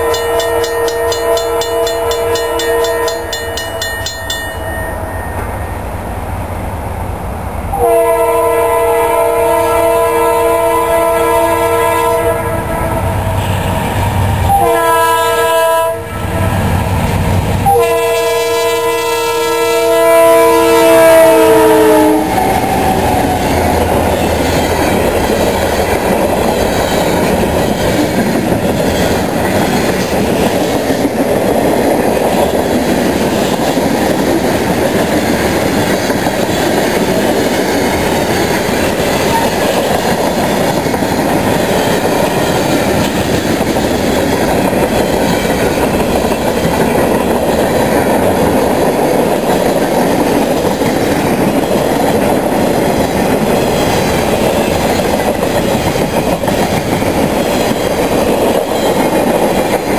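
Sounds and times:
locomotive horn blasts: 0.0 - 4.2, 7.7 - 13.7, 14.4 - 16.7, 17.6 - 22.4
freight cars rolling on rails: 21.0 - 59.9.

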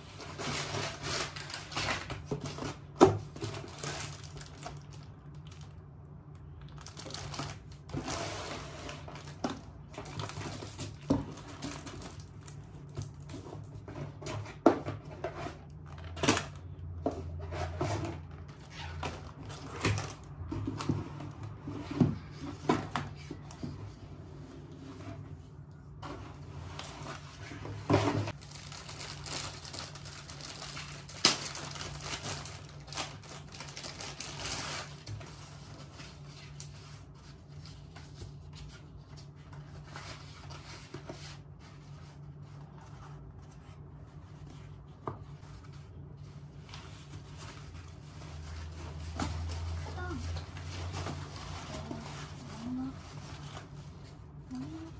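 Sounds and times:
plastic wrapping crinkling: 0.0 - 13.7, 28.3 - 38.6.

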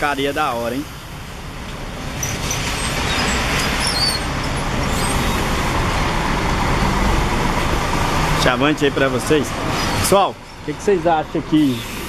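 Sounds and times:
bus engine rumbling: 0.0 - 12.0
tyre hiss on wet pavement: 9.2 - 12.0.

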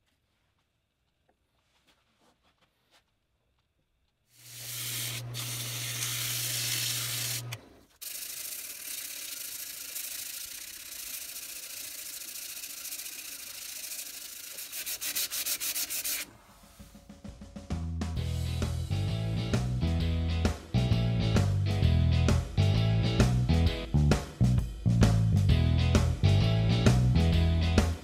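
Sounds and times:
sandpaper hissing on spinning wood: 4.4 - 17.0.

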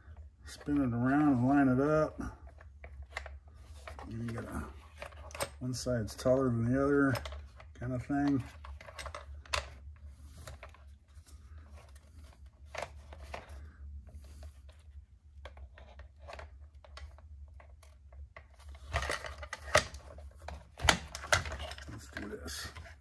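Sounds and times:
steady low hum: 0.0 - 23.0
plastic and metal parts clicking: 7.0 - 9.8, 15.4 - 23.0.

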